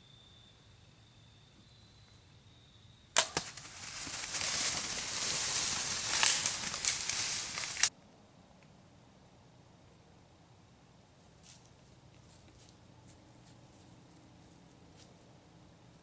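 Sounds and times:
bow shot snap: 3.2s - 3.8s
animal crashing through dry leaves: 3.2s - 7.9s.

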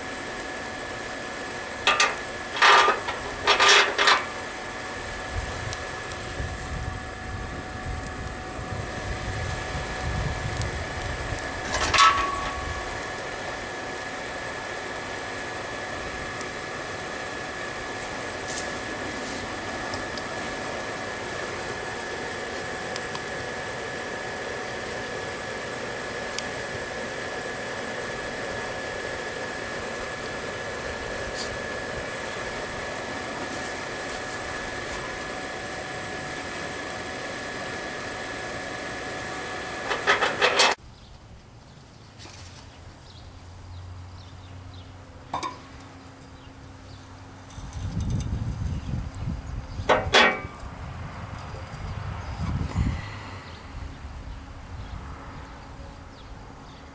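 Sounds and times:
electric blower fan whining: 0.0s - 41.6s, 42.2s - 56.9s
metal tongs scraping and clattering: 1.9s - 4.3s, 11.6s - 12.6s
metal clank: 11.6s - 12.6s, 49.9s - 50.6s.

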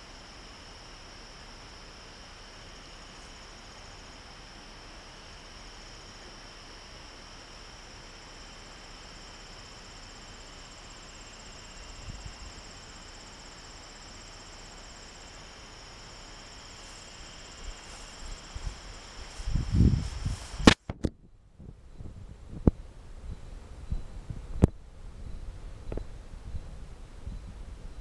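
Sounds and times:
insects trilling: 0.0s - 20.8s
microphone handling rumble: 17.7s - 22.9s.

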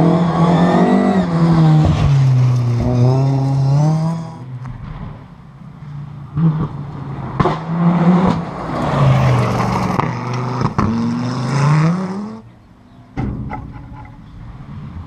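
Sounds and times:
rally car engine revving: 0.0s - 4.5s, 6.3s - 12.5s.

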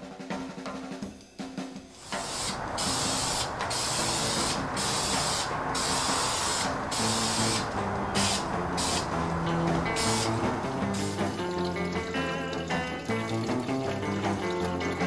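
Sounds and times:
spray paint can hissing: 2.0s - 11.8s.

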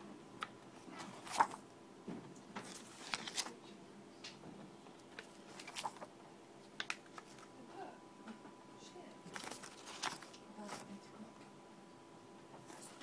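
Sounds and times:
book pages turning: 0.4s - 1.6s, 2.6s - 3.6s, 5.0s - 7.5s, 9.3s - 11.0s.

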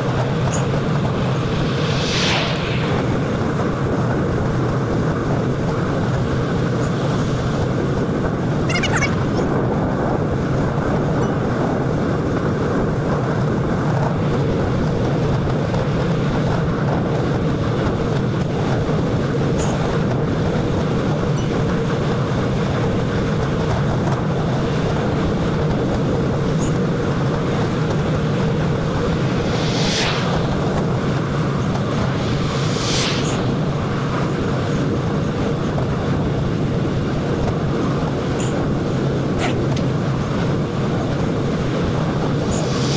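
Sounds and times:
low road hum: 0.0s - 42.9s
wind rush on microphone: 0.0s - 42.9s
brief high-pitched sounds: 8.7s - 9.3s.

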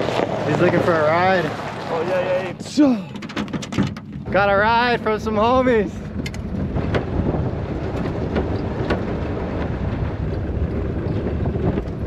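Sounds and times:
truck engine and tyres on gravel: 0.0s - 12.0s
wind buffeting microphone: 0.0s - 12.0s
truck knocking over bumps: 2.6s - 5.1s, 6.0s - 12.0s.

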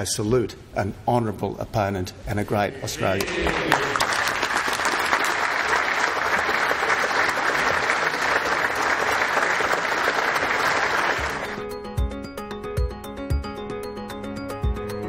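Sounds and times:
crowd applauding: 2.9s - 11.6s.

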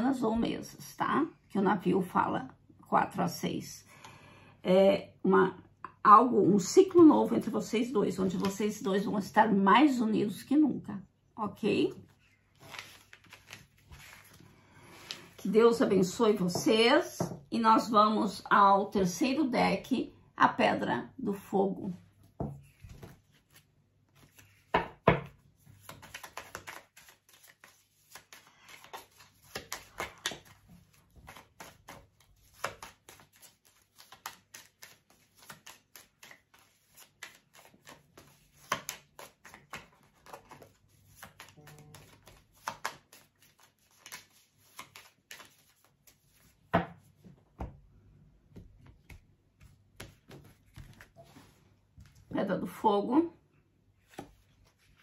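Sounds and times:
cards being shuffled: 12.2s - 15.4s, 22.6s - 47.7s, 48.5s - 52.2s, 54.0s - 55.0s.

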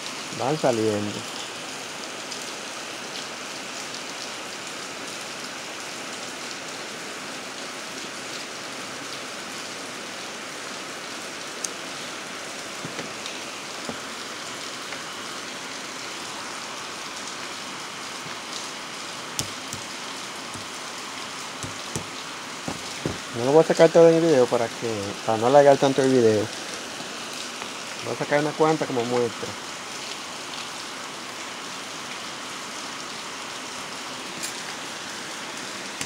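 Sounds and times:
steady hiss: 10.8s - 30.3s
light clicks of steel laminations: 19.4s - 19.9s, 21.6s - 23.3s.

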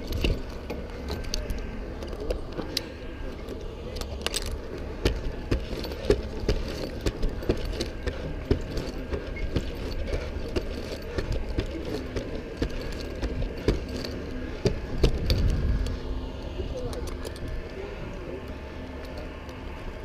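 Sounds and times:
metal carabiners jingling: 0.0s - 15.6s
steady low rumble: 0.0s - 20.0s
climbing gear knocking on wood: 4.2s - 15.6s.

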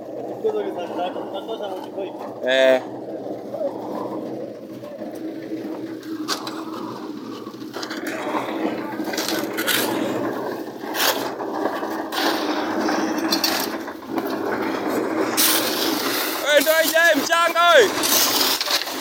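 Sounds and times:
concrete mixer humming: 0.0s - 19.0s
shovels scraping wet concrete: 0.2s - 19.0s
shovels knocking on wheelbarrows: 5.1s - 19.0s.

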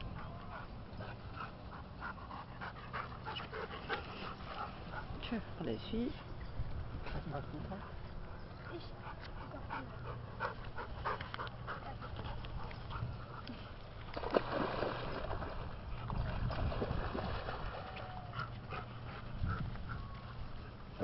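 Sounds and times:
dogs panting: 0.0s - 6.4s, 7.3s - 13.8s, 18.2s - 21.0s
water splashing: 14.0s - 18.3s.

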